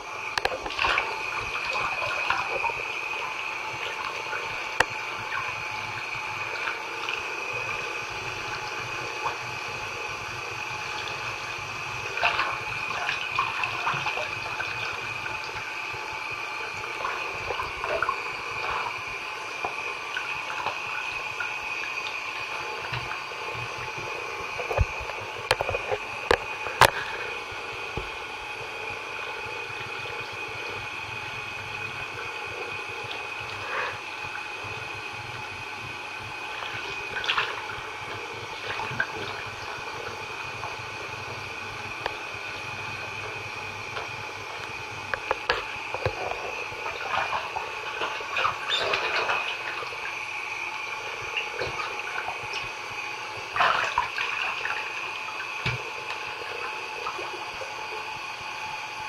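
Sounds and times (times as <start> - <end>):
splashing water: 0.4 - 7.9, 12.0 - 27.3, 36.4 - 40.9, 44.0 - 58.1
tap running into bathtub: 12.1 - 27.2, 36.5 - 50.2, 51.1 - 52.8, 53.4 - 57.8.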